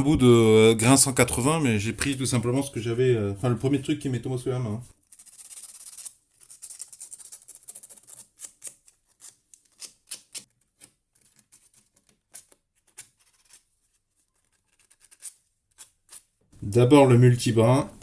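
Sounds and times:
sandpaper scratching on wire: 0:05.0 - 0:16.3.

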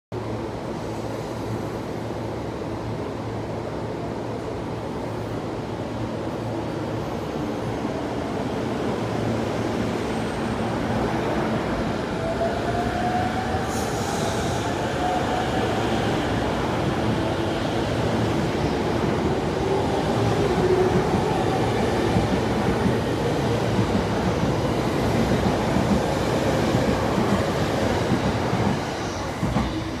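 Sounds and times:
train wheels rumbling on rail: 0:07.2 - 0:30.0.

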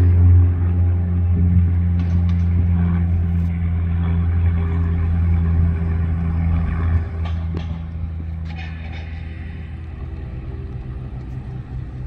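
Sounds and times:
aircraft engine drone: 0:00.0 - 0:12.0.

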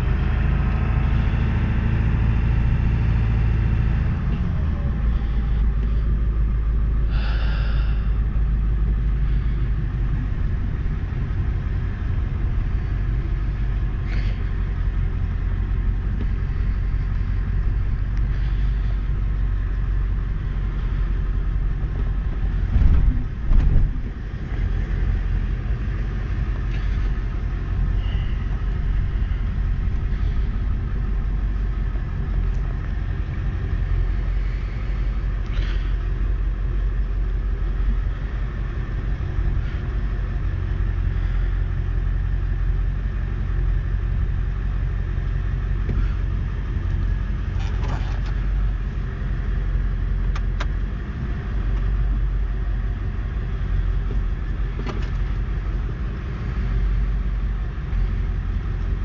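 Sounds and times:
car engine rumbling: 0:00.0 - 0:59.0
road noise: 0:00.0 - 0:59.0.

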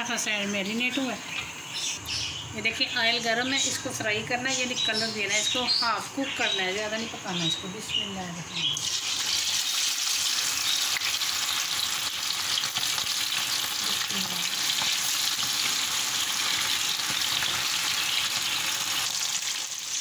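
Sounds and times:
chicken deep-frying in oil: 0:08.7 - 0:20.0.

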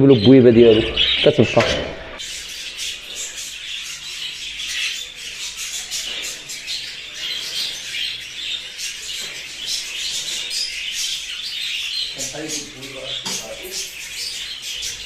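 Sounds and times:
budgerigars chattering: 0:00.0 - 0:15.0.

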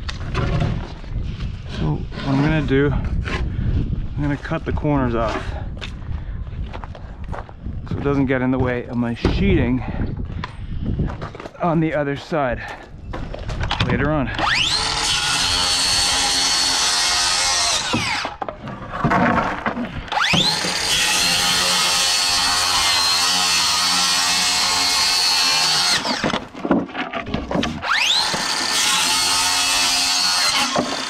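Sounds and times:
circular saw cutting plywood: 0:14.4 - 0:31.0.

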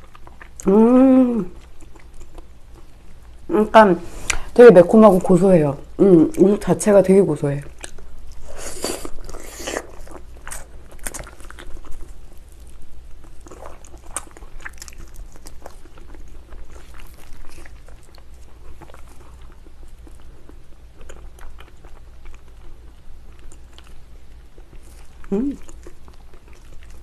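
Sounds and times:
biting and chewing meat: 0:00.0 - 0:00.6, 0:09.0 - 0:27.0.

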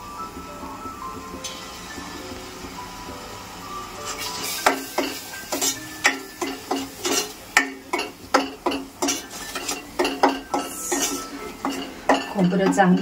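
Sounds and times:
pot ringing: 0:01.4 - 0:13.0
spoon scraping metal pot: 0:06.4 - 0:13.0.

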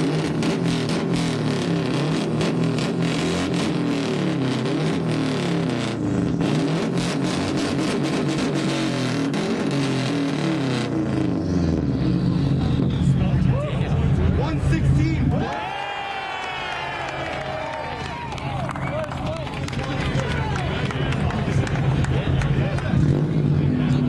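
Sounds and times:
exhaust crackle: 0:00.0 - 0:15.1
car engine revving: 0:00.0 - 0:15.5, 0:17.0 - 0:24.0.

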